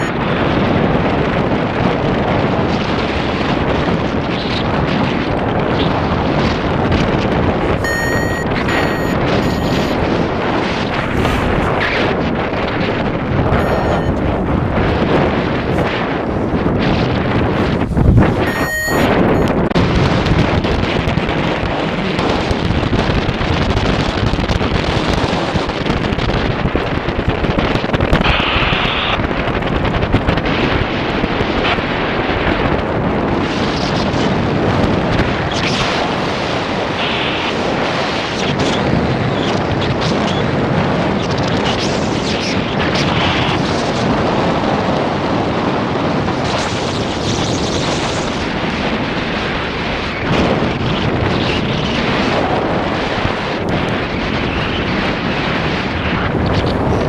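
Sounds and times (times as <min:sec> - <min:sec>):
wind buffeting microphone: 0:00.0 - 0:57.0
brief high-pitched sounds: 0:07.7 - 0:10.0, 0:13.6 - 0:14.2, 0:18.4 - 0:19.6.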